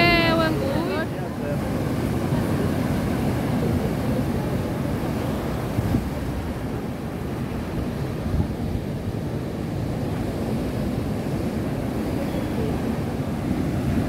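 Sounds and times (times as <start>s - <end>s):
wind noise: 4.9s - 14.0s.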